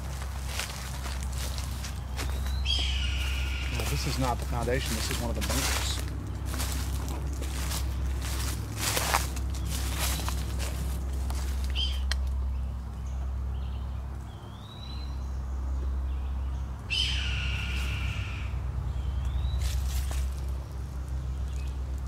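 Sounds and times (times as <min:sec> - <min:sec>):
bird of prey screaming: 0:02.7 - 0:04.0, 0:16.9 - 0:18.6.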